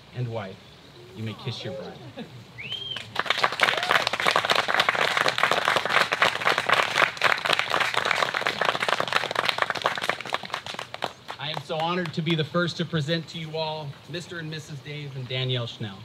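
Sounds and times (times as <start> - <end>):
crowd applauding: 2.7 - 12.4.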